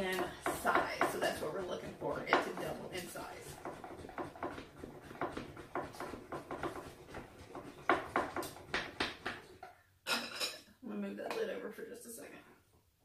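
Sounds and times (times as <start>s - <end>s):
milk frother plunger pumping: 0.0s - 9.6s.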